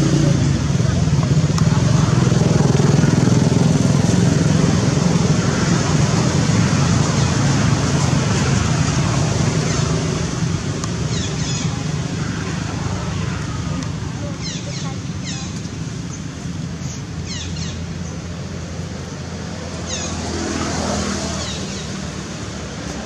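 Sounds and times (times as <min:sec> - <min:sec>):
engine running low rumble: 0:00.0 - 0:23.0.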